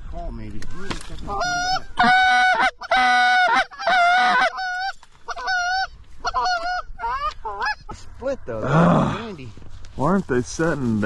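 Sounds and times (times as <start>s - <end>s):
goose honking: 1.3s - 7.8s.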